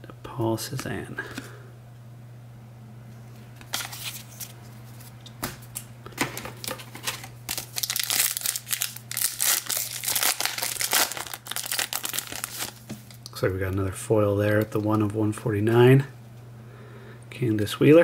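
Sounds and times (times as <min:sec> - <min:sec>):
foil wrapper crinkling: 0:06.5 - 0:13.3.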